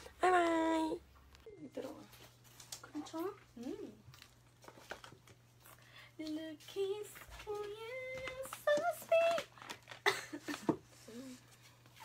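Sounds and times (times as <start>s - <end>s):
person singing wordless tune: 6.2s - 9.5s.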